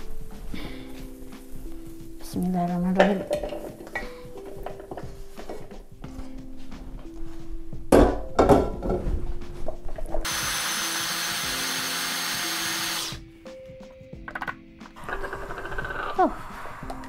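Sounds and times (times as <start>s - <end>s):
wok clattering on hob: 3.0s - 5.8s, 7.9s - 9.1s
electric blender grinding: 10.2s - 13.2s.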